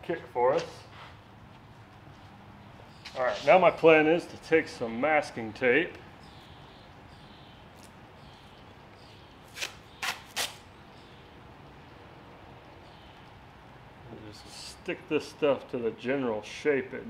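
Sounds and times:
masking tape ripping off roll: 0:09.5 - 0:10.7.

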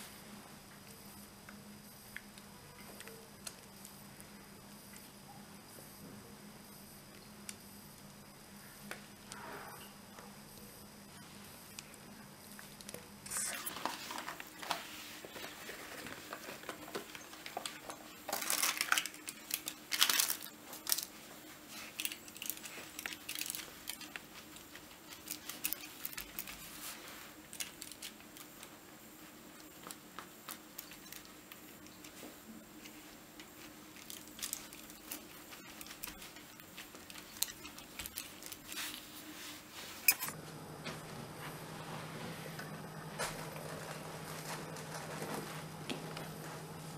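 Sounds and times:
paper and baking mat rustling: 0:13.3 - 0:40.1, 0:40.9 - 0:46.9.

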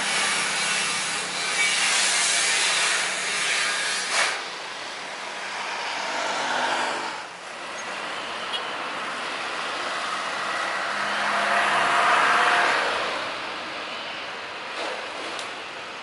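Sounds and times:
jet engine rush with whine: 0:04.1 - 0:08.0.

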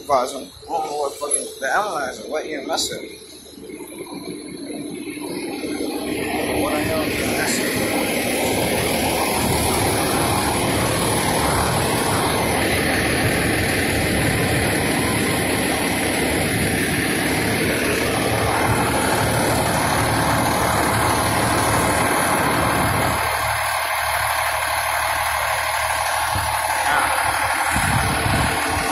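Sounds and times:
diesel engine idling: 0:00.0 - 0:28.9.

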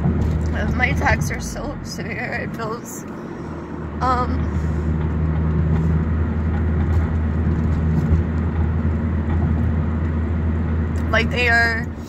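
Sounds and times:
car cabin engine and tyre hum: 0:00.0 - 0:12.0.

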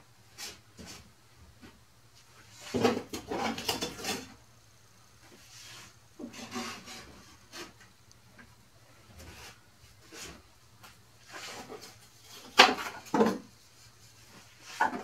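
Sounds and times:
plywood scraping and knocking: 0:02.5 - 0:04.3, 0:05.3 - 0:07.8, 0:09.2 - 0:13.6, 0:14.3 - 0:15.0.

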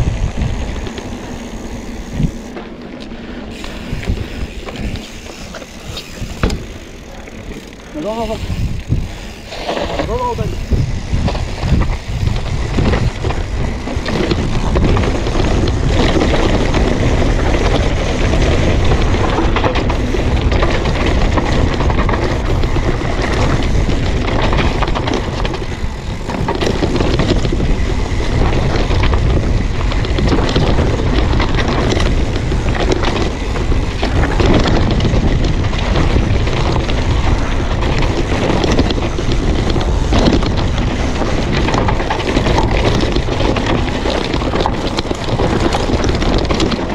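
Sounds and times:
bike rattling over bumps: 0:00.0 - 0:46.9
tyres rolling on dirt: 0:00.0 - 0:46.9
wind rushing over microphone: 0:00.0 - 0:46.9.

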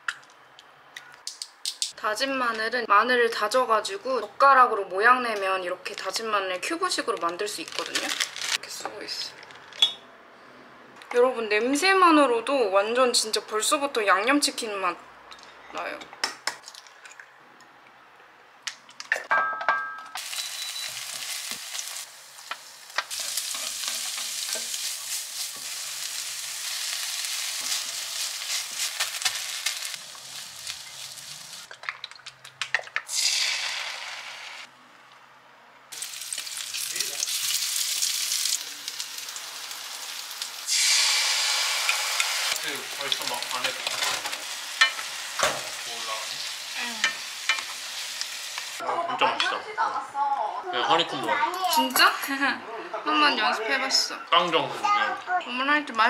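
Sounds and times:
oil sizzling in frying pan: 0:20.2 - 0:34.7, 0:35.9 - 0:48.8.

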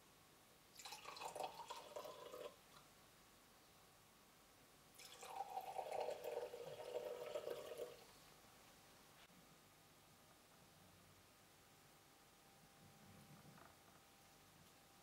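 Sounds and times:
wine pouring into a glass: 0:00.8 - 0:02.6, 0:05.0 - 0:08.1.

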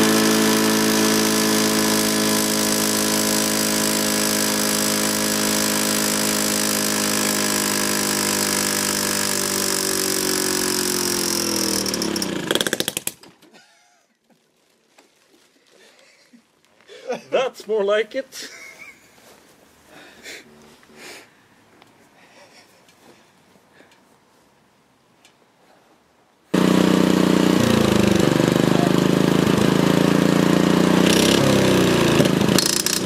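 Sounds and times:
lawn mower engine droning: 0:00.0 - 0:13.2, 0:26.5 - 0:33.0.

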